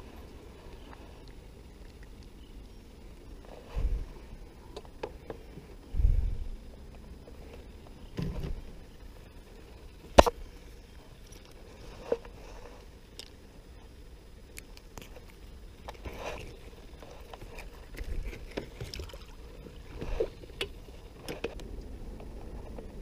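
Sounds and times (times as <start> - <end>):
water sloshing against kayak: 16.0 - 20.6
water splashes: 18.6 - 19.9.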